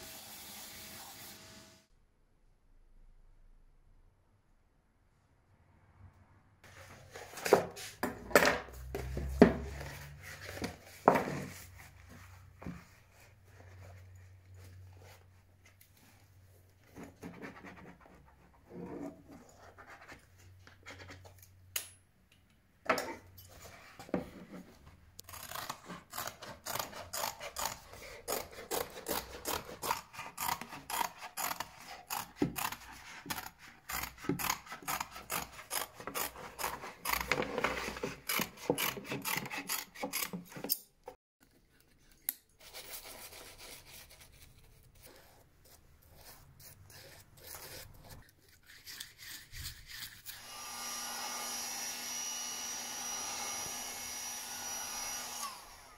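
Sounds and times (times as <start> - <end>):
scissors snipping leather: 25.2 - 37.5.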